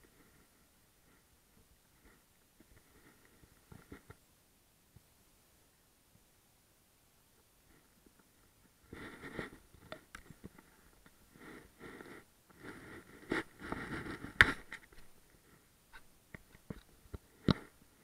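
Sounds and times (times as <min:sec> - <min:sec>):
kitten rustling and scraping string: 0:08.9 - 0:10.7, 0:11.3 - 0:15.1.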